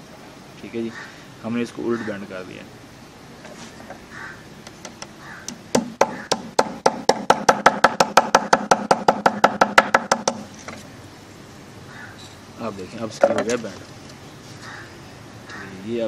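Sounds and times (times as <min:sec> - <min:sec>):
hammer tapping metal strip: 0:04.7 - 0:10.5.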